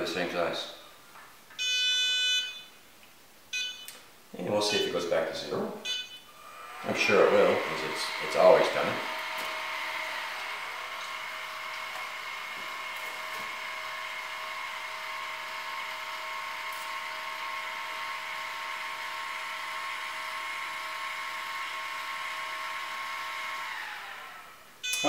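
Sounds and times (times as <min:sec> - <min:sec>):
telescope mount motor whine: 0:05.9 - 0:25.0.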